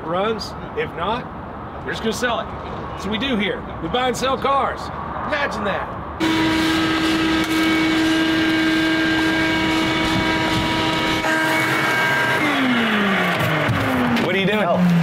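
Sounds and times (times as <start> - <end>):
shop vacuum motor whining: 6.2 - 14.3.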